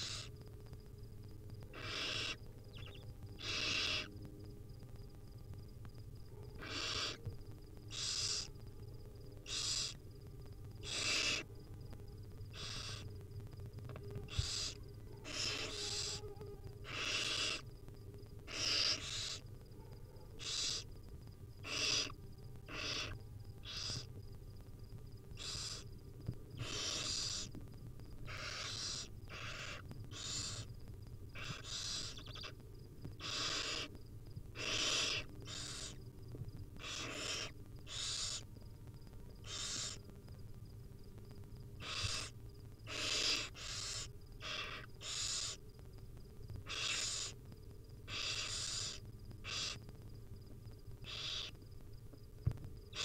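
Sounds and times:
owl nestlings hissing begging calls: 0.0 - 0.4, 1.7 - 4.2, 6.5 - 8.6, 9.4 - 10.0, 10.8 - 11.5, 12.4 - 13.2, 14.2 - 17.7, 18.4 - 19.5, 20.3 - 20.9, 21.6 - 24.1, 25.3 - 25.9, 26.6 - 27.6, 28.2 - 36.0, 36.8 - 38.5, 39.4 - 40.1, 41.8 - 45.6, 46.6 - 50.0, 51.0 - 51.6.

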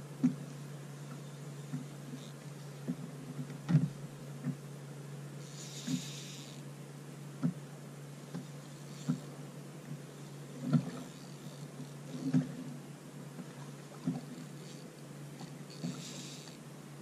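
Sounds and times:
steady low hum: 0.0 - 17.0
muffled knocks and thumps: 2.8 - 4.6.

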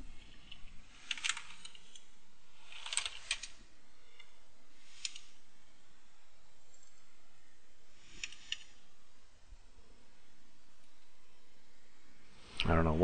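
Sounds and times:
keyboard typing: 0.5 - 2.0.

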